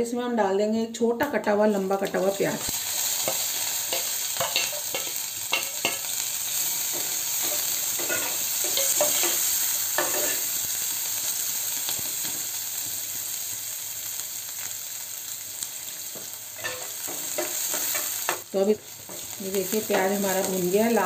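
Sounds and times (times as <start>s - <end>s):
onions sizzling in oil: 1.4s - 21.0s
steel spoon scraping pan: 6.8s - 10.4s.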